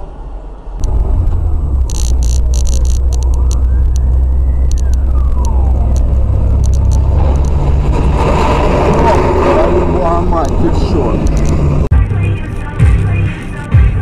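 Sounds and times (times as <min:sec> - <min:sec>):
vehicle low rumble: 0:00.0 - 0:12.4
sharp ticks: 0:00.8 - 0:07.6
siren wailing: 0:00.9 - 0:11.7.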